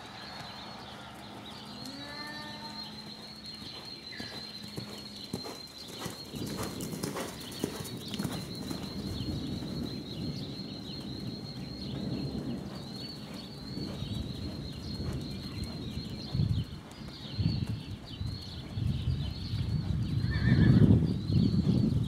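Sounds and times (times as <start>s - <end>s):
faint chirps: 0.0s - 16.0s
hoofbeats on soft sand: 0.0s - 22.0s.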